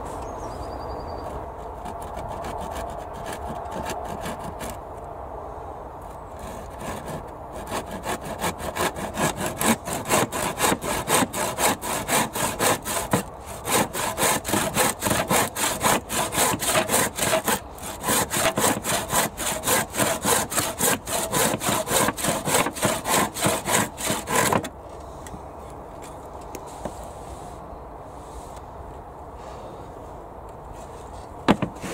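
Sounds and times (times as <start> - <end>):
handsaw cutting wood: 1.8 - 4.8, 6.4 - 24.7, 31.5 - 31.9.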